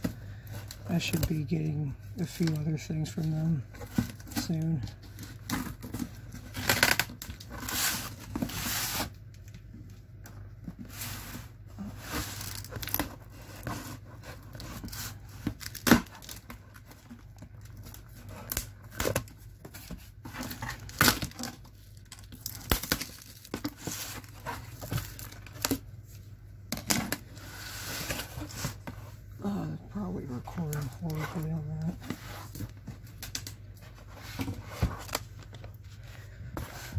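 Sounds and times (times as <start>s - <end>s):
tape and cardboard tearing: 5.4s - 9.2s, 12.0s - 17.2s, 17.8s - 25.8s.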